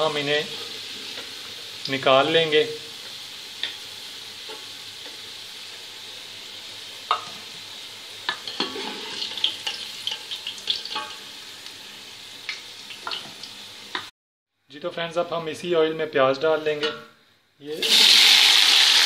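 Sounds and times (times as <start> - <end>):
potatoes sizzling in hot oil: 0.0 - 14.1, 17.7 - 19.0
metal ladle clinking against pot: 16.8 - 17.2.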